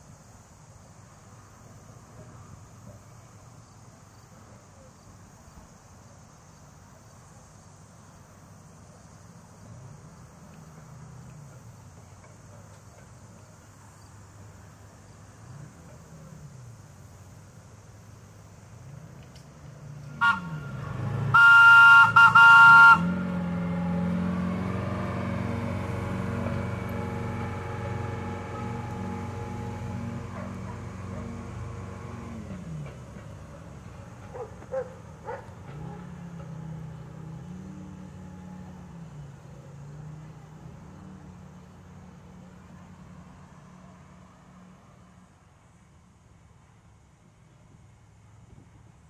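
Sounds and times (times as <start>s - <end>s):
diesel engine hum: 0.0s - 49.0s
insects droning: 0.0s - 49.0s
streetcar horn: 20.1s - 32.2s.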